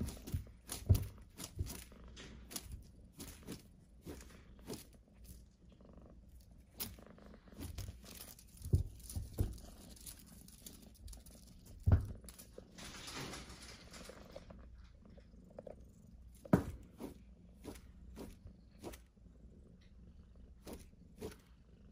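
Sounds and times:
toy crinkling and rustling: 0.0s - 5.6s, 6.3s - 15.3s
paws thumping on felt: 16.3s - 19.0s.

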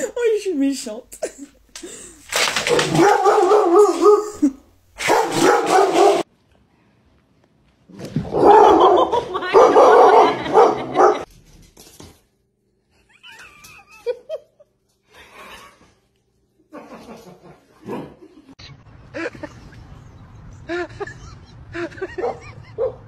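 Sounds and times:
dogs barking: 2.7s - 4.4s, 5.0s - 6.3s, 8.3s - 11.3s, 22.1s - 23.0s.

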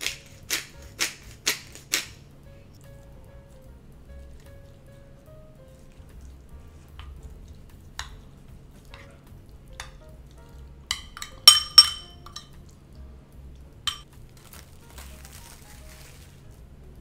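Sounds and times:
metal spoon clinking in bowl: 10.9s - 12.6s.

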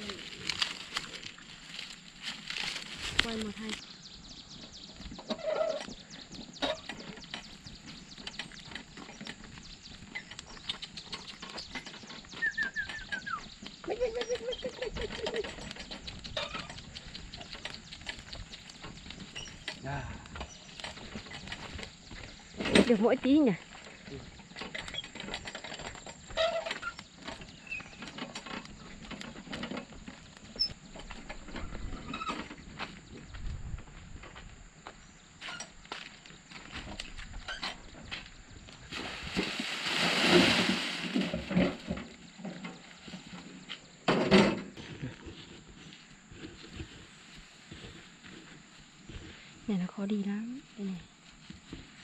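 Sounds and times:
footsteps: 0.0s - 3.8s
metal wheelbarrow rattling on dirt: 0.0s - 3.8s, 4.5s - 33.1s, 38.8s - 48.0s
footsteps on dirt: 0.0s - 5.2s, 44.7s - 49.6s
animal call: 12.4s - 17.7s.

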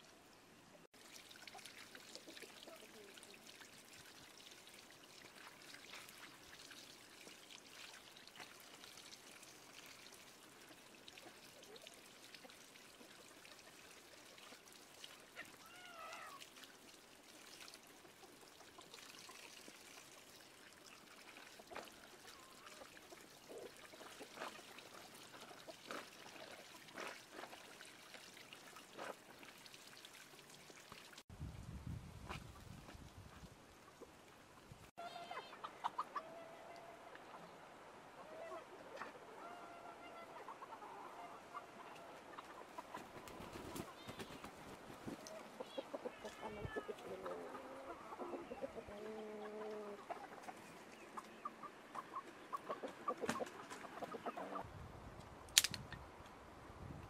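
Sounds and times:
small water splashes: 1.0s - 31.3s
water trickling from a pipe: 1.0s - 31.3s.

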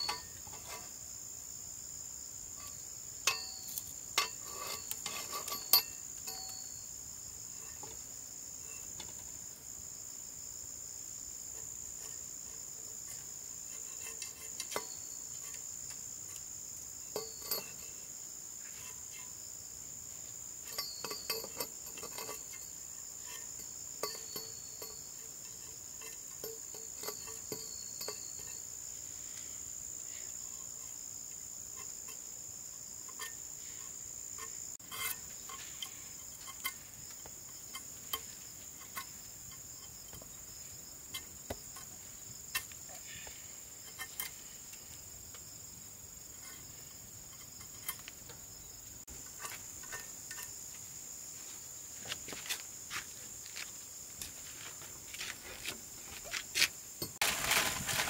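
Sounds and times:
short clinks and knocks: 0.0s - 1.0s, 2.5s - 9.3s, 11.6s - 18.1s, 20.6s - 28.9s, 31.6s - 45.5s, 46.4s - 50.6s
insects chirring: 0.0s - 58.0s.

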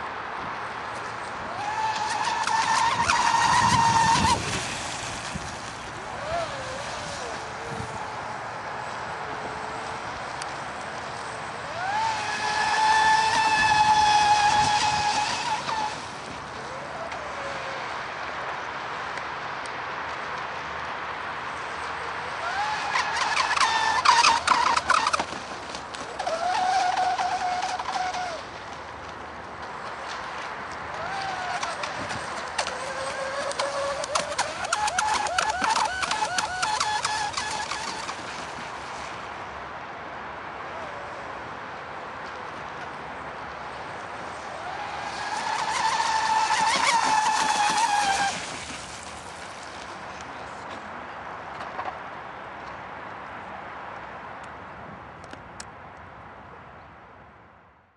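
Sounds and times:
model boat motor whining: 1.1s - 18.0s, 22.1s - 29.0s, 29.9s - 39.1s, 43.9s - 49.4s.

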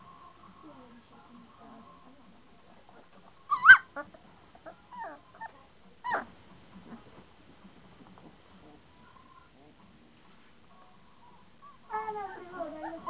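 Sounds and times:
puppies yelping: 3.5s - 4.1s.

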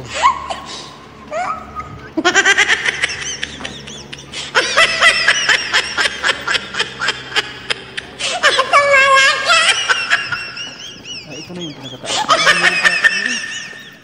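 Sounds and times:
man laughing: 0.0s - 14.0s.

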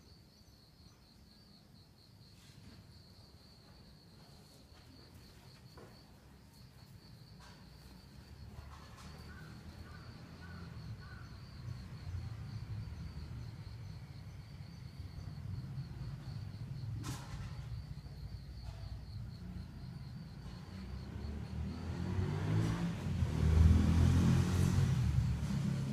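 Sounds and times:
pulsing insect trill: 5.2s - 23.4s
low outdoor rumble: 5.9s - 21.9s.

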